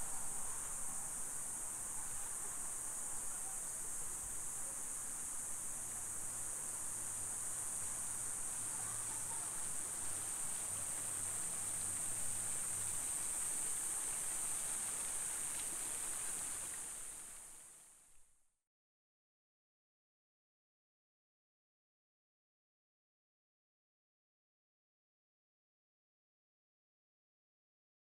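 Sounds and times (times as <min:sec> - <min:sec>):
insects buzzing: 0:00.0 - 0:18.1.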